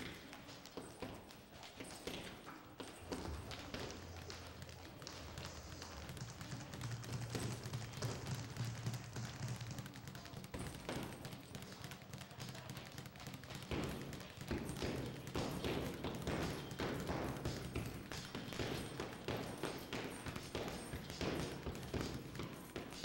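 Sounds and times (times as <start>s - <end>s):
punches thudding on bags: 6.0s - 23.0s.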